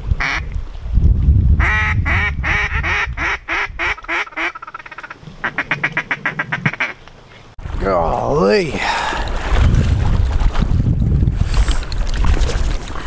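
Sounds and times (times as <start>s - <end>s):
wind rumble on microphone: 0.0s - 4.1s, 8.7s - 13.0s
duck quacking: 1.6s - 7.0s.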